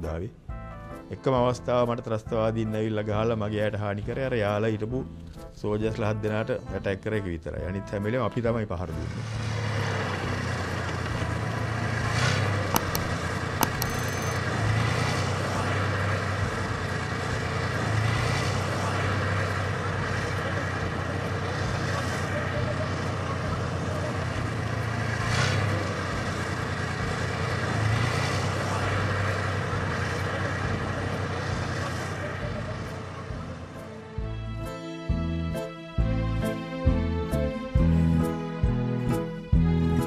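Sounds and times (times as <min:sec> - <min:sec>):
vehicle engine rumbling: 0:11.2 - 0:34.0
sharp clicks: 0:12.7 - 0:14.4.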